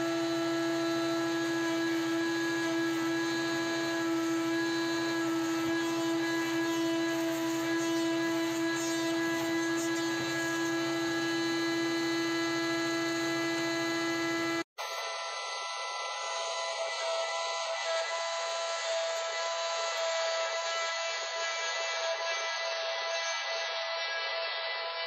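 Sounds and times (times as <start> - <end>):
band sawmill cutting log: 0.0 - 14.6.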